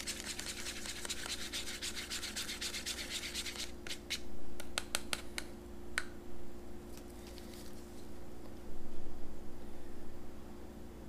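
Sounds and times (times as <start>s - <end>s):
stir stick scraping a cup: 0.0s - 4.2s.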